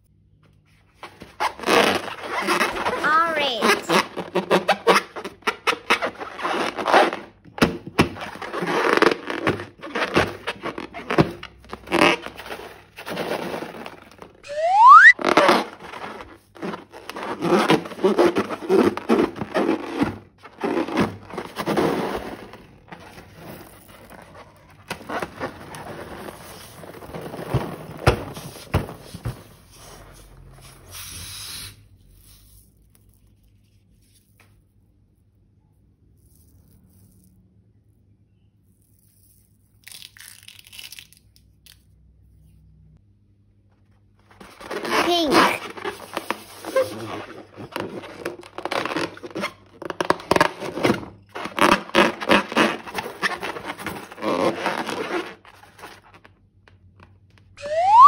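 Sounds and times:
short rising squeak: 14.5s - 15.2s, 57.6s - 58.0s.

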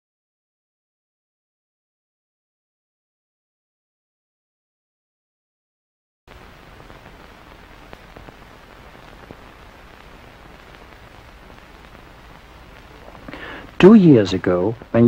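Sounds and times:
old film soundtrack hiss and crackle: 6.3s - 15.0s.

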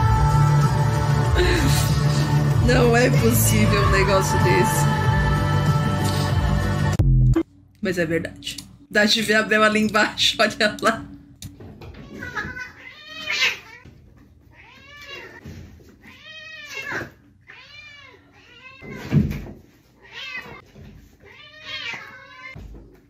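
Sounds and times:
cats meowing loudly: 11.9s - 13.9s, 14.5s - 15.4s, 16.0s - 19.1s, 20.0s - 20.6s, 21.2s - 22.6s.

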